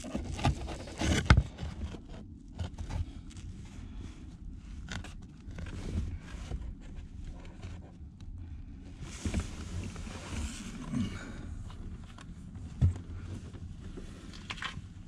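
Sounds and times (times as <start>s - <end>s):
steady low rumble: 1.4s - 15.0s
air filter scraping and rustling: 9.0s - 11.0s.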